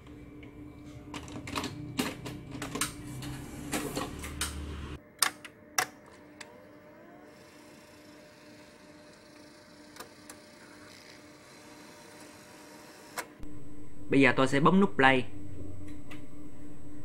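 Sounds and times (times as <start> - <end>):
steady hum: 13.4 - 17.0.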